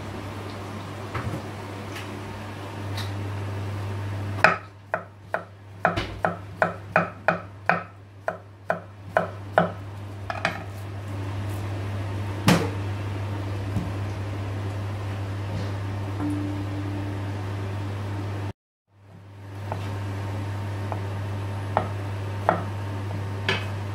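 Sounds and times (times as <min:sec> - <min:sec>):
steady low hum: 0:00.0 - 0:23.9
knife chopping on wooden board: 0:04.4 - 0:10.7, 0:21.7 - 0:22.7.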